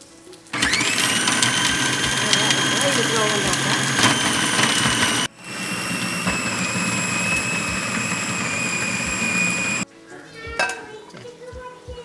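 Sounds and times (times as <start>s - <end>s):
food processor motor whining: 0.6s - 9.8s.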